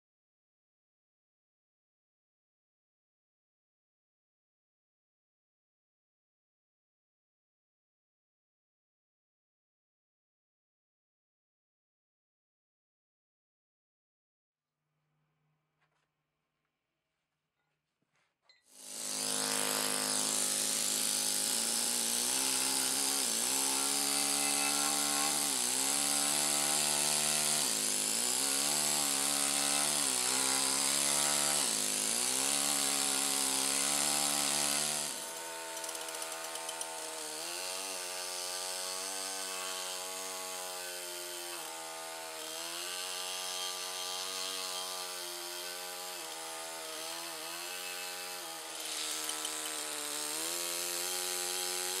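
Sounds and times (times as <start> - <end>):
pneumatic hammer buzzing: 18.7 - 52.0.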